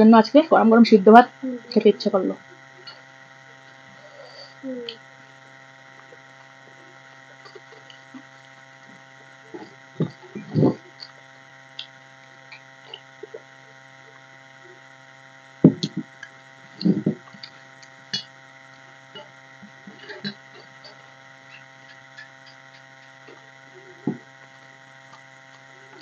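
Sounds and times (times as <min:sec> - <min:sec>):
steady electrical hum: 0:00.0 - 0:26.0.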